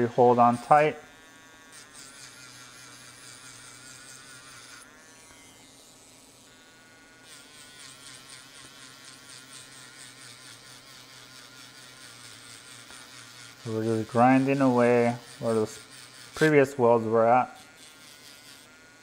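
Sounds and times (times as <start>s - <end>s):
grinding pen whining: 0.0s - 19.0s.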